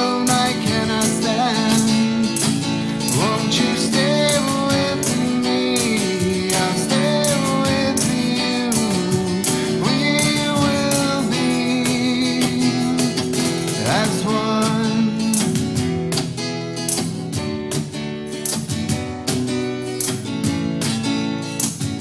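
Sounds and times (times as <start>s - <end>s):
man singing: 0.0s - 15.7s
strummed acoustic guitar: 0.0s - 22.0s.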